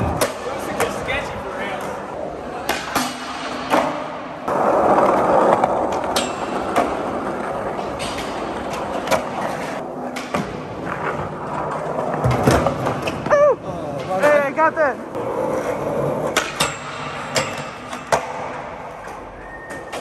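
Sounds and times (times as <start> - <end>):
skateboards clacking: 0.0 - 20.0
skateboards rolling on concrete: 0.0 - 20.0
skateboard scraping grind: 4.5 - 12.3.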